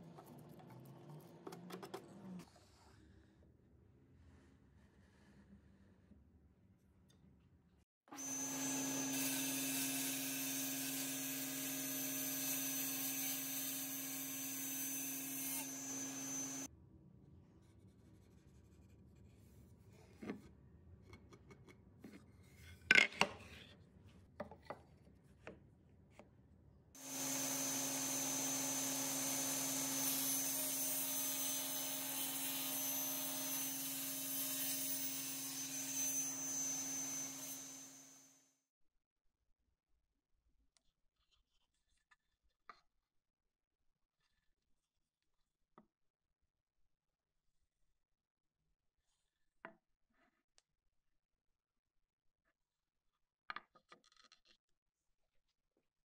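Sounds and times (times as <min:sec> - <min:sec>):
table saw cutting wood: 0:08.1 - 0:16.7, 0:27.0 - 0:38.4.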